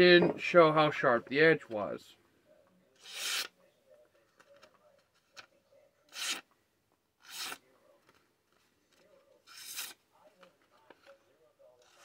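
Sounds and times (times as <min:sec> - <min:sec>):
pocket knife slicing paper: 0:03.0 - 0:03.5, 0:06.1 - 0:06.4, 0:07.2 - 0:07.6, 0:09.4 - 0:10.0.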